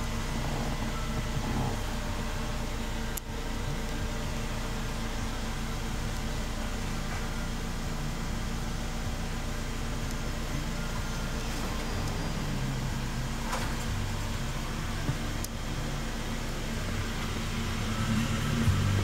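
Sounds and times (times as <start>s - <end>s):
car engine idling inside cabin: 0.0s - 19.0s.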